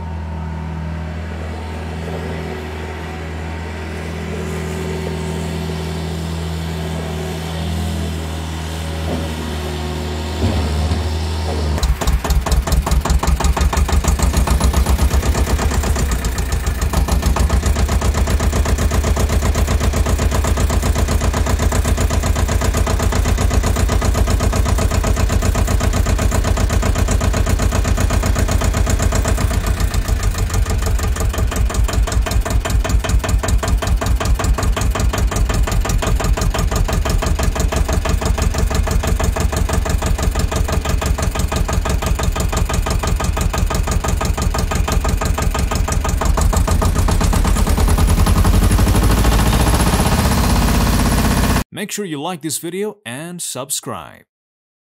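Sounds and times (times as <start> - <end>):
engine idling: 0.0 - 51.6.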